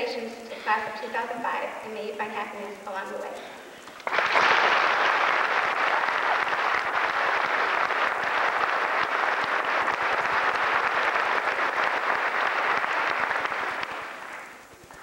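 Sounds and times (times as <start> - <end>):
audience applauding: 3.8 - 15.0.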